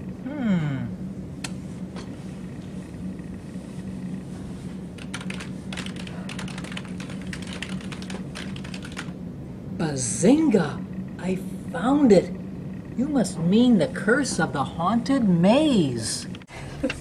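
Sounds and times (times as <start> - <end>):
steady low hum: 0.0 - 17.0
keyboard typing: 5.0 - 9.1.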